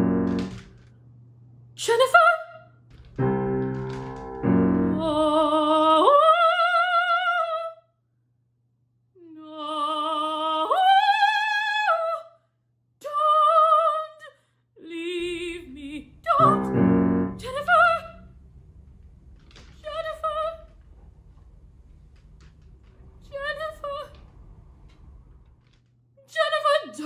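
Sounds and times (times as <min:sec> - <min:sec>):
piano chords: 0:00.0 - 0:00.8, 0:02.9 - 0:05.9, 0:15.3 - 0:18.9
woman singing operatically: 0:01.8 - 0:02.7, 0:04.9 - 0:07.8, 0:09.3 - 0:12.3, 0:13.0 - 0:18.2, 0:26.2 - 0:27.0.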